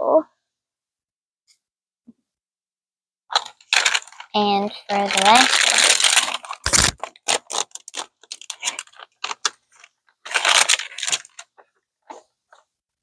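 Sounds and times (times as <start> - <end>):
plastic foil pouch crackling: 3.3 - 11.5
plastic pouch tearing: 3.3 - 11.5.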